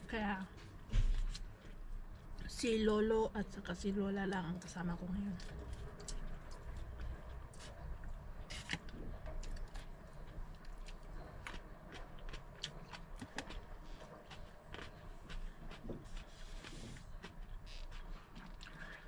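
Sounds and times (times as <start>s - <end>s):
steady low hum: 0.0s - 19.0s
chewing: 8.9s - 19.0s.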